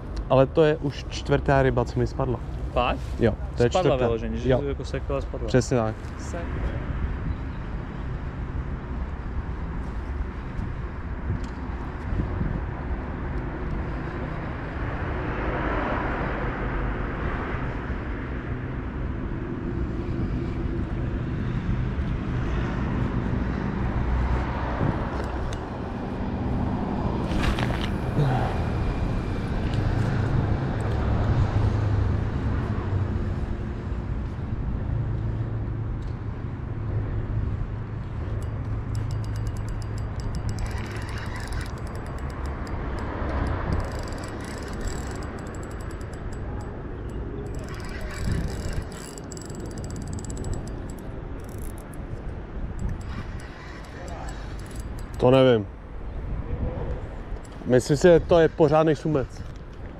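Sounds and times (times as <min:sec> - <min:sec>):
road traffic rumble: 0:00.0 - 0:59.9.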